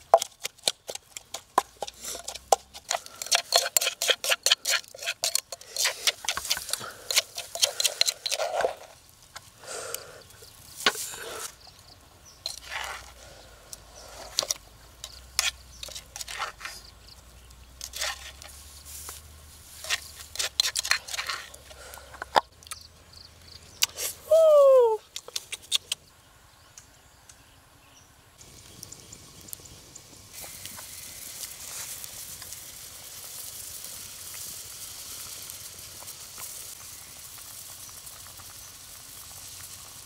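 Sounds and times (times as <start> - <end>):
pestle clicking in clay mortar: 0.0 - 8.4
spoon scraping and tapping: 0.0 - 8.8, 14.3 - 16.8.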